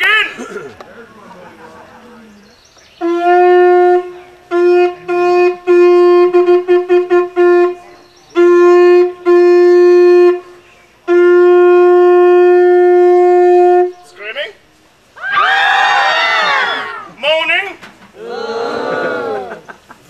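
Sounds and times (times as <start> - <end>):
hand-held horn blasts: 3.0 - 14.2.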